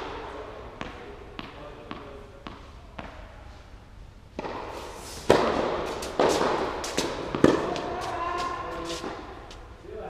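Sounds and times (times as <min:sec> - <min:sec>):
tennis ball hits and bounces: 0:04.4 - 0:09.3.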